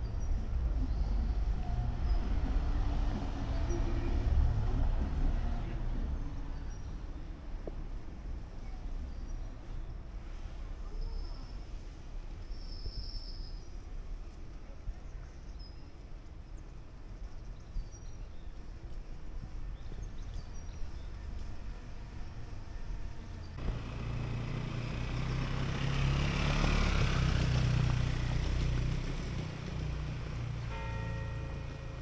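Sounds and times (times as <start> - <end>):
car driving past: 21.6 - 32.0.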